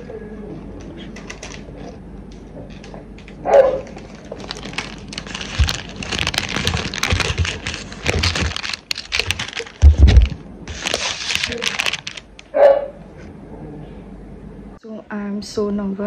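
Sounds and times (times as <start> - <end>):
cellophane wrapper crinkling: 2.8 - 12.5.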